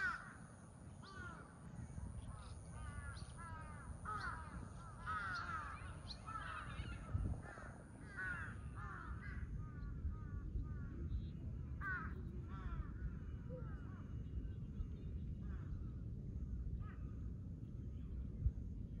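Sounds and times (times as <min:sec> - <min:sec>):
crows cawing: 0:00.0 - 0:01.5, 0:02.4 - 0:10.8, 0:11.8 - 0:13.1
low steady rumble: 0:00.0 - 0:19.0.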